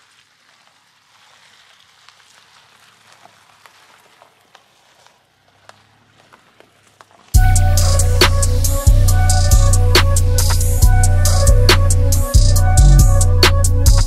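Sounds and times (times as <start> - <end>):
small clicks and pops: 0.0 - 7.4
tyres crackling over twigs and gravel: 0.0 - 7.8.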